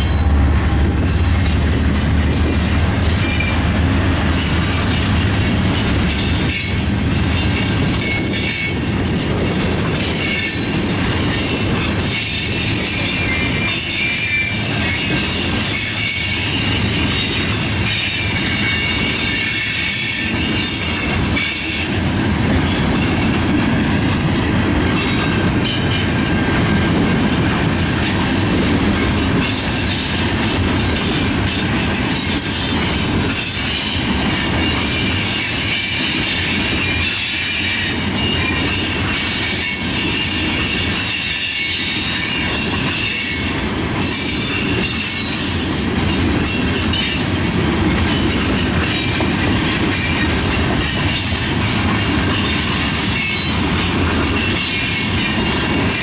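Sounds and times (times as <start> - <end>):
high-pitched wheel squeal: 0.0 - 0.4
train wheels rumbling on rails: 0.0 - 56.0.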